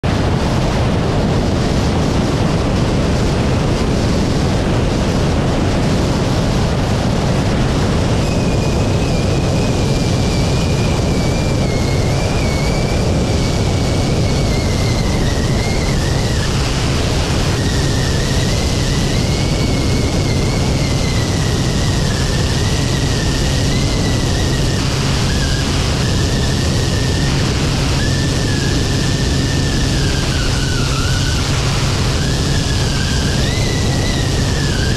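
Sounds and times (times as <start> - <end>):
turboprop engine drone: 0.0 - 34.9
wind rushing over microphone: 0.0 - 34.9
high wavering whistle: 17.6 - 34.9.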